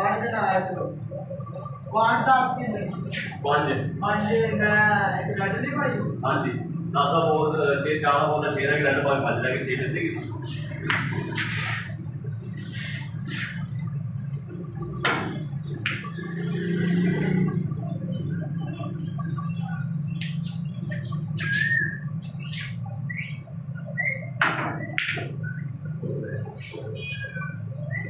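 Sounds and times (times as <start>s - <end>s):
snooker balls clicking: 10.8s - 12.0s, 14.8s - 16.3s, 24.4s - 25.4s
bird chirps: 12.4s - 28.0s.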